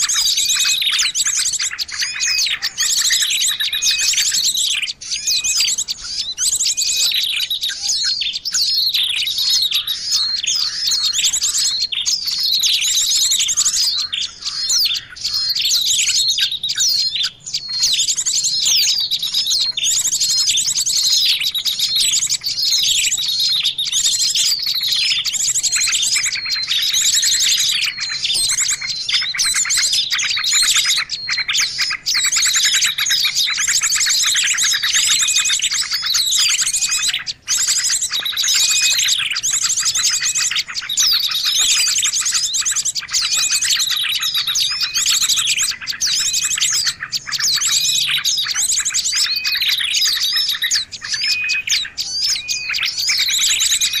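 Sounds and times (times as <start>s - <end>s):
songbirds chirping and trilling: 0.0s - 54.0s.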